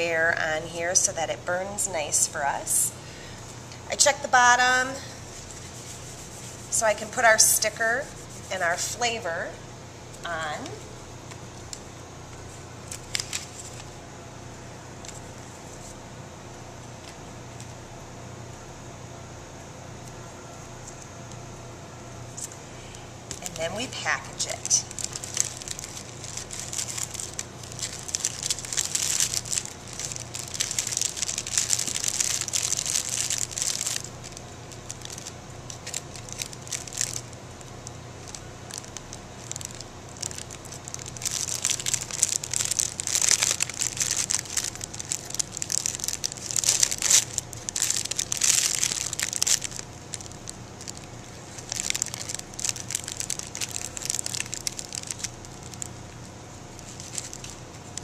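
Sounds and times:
plastic bag crinkling: 0:12.8 - 0:14.0, 0:23.3 - 0:58.0.

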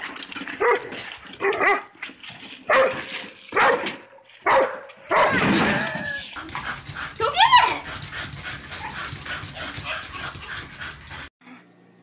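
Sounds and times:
wagon rolling on pavement: 0:00.0 - 0:11.2
dog yelping: 0:04.5 - 0:06.4.

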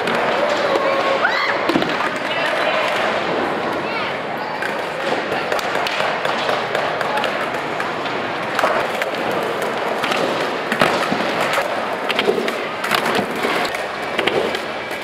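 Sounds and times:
skateboard wheels rolling: 0:00.0 - 0:15.0
skateboards knocking on wooden ramps: 0:04.6 - 0:15.0.

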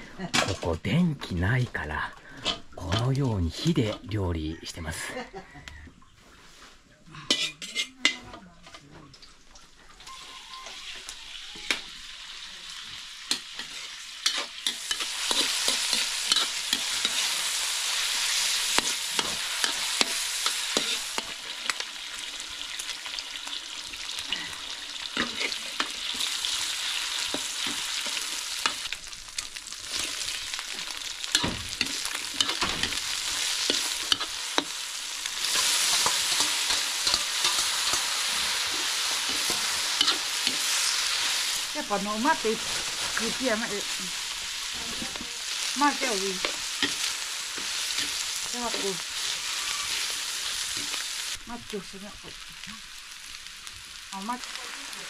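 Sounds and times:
food sizzling in a hot pan: 0:07.2 - 0:08.8, 0:09.6 - 0:55.0.

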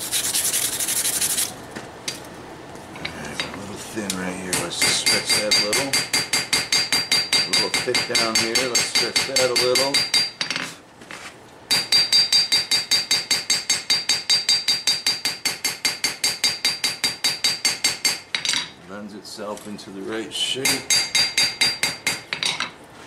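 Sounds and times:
hammer blows ringing on anvil: 0:04.5 - 0:10.4, 0:11.7 - 0:18.2, 0:20.6 - 0:22.2.

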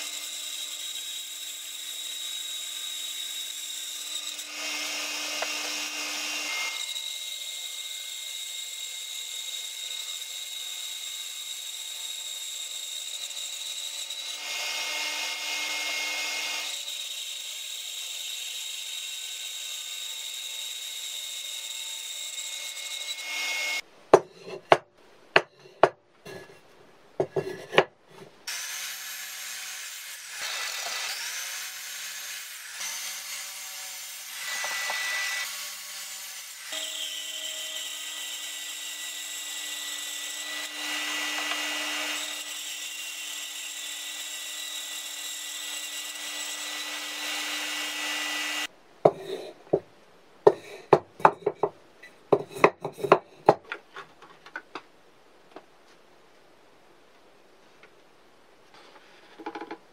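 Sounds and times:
mitre saw cutting: 0:00.0 - 0:23.8, 0:27.4 - 0:49.5
bandsaw cutting wood: 0:02.8 - 0:07.4, 0:28.5 - 0:49.5
sharp wooden knocks: 0:59.4 - 0:59.8.

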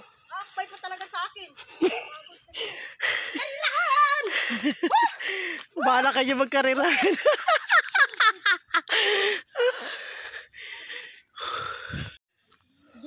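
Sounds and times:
person laughing: 0:01.6 - 0:05.4.

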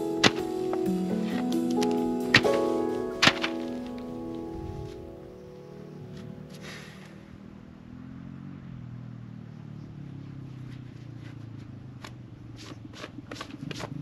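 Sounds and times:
footsteps crunching on mulch: 0:00.2 - 0:05.1.

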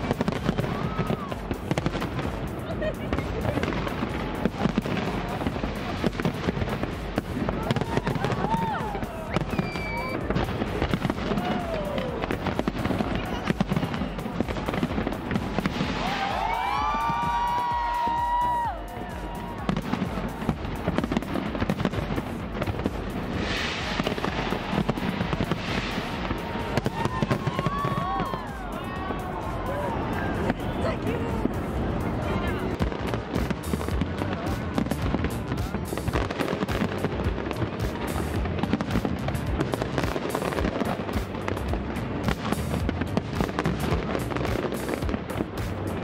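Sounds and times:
fireworks bangs and crackles: 0:00.0 - 0:46.0
music playing: 0:00.0 - 0:46.0
hissing crackle: 0:19.2 - 0:28.2.

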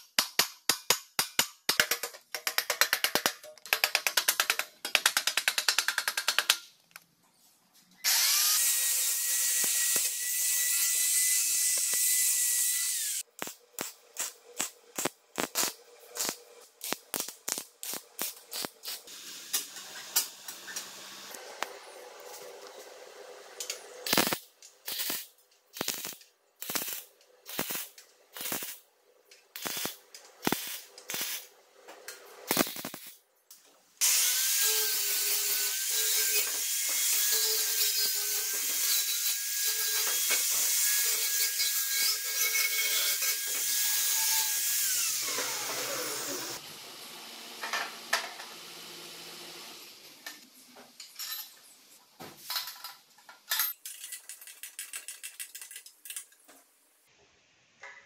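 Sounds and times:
welding bursts: 0:08.1 - 0:21.3, 0:24.0 - 0:28.8, 0:29.5 - 0:31.5, 0:32.4 - 0:33.2
angle grinder whining: 0:41.0 - 0:46.6.

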